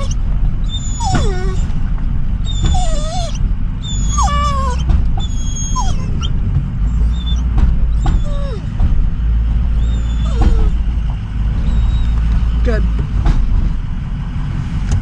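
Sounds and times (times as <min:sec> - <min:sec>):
dog whining: 0:00.0 - 0:01.8, 0:02.4 - 0:08.9, 0:09.7 - 0:12.5
truck engine rumble: 0:00.0 - 0:15.0.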